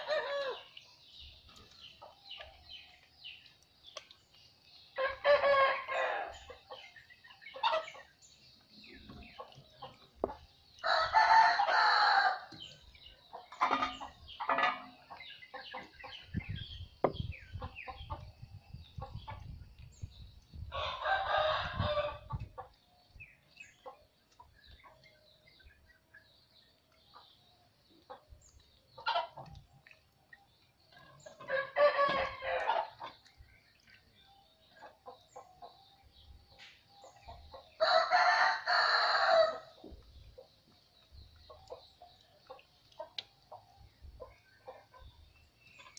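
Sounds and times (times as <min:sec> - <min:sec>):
rooster crowing: 0:10.8 - 0:12.5, 0:37.8 - 0:39.6.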